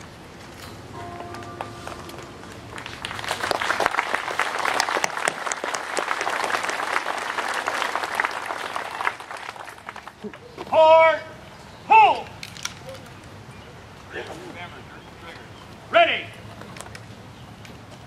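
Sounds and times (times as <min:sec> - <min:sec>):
crowd clapping: 0:01.6 - 0:10.5.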